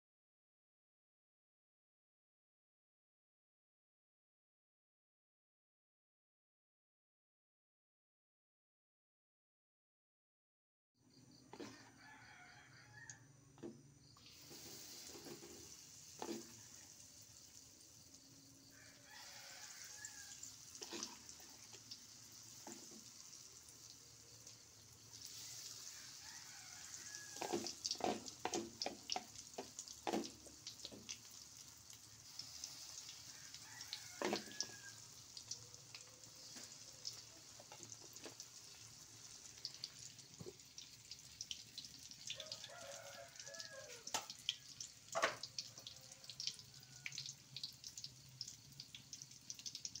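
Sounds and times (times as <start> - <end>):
fritters sizzling in hot oil: 14.1 - 50.0.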